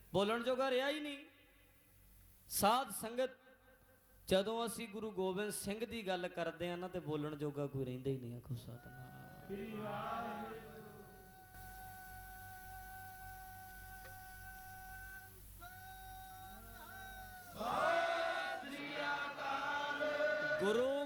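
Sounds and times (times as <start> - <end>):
steady held tone: 8.8 - 18.8
man chanting into a microphone: 20.6 - 21.0.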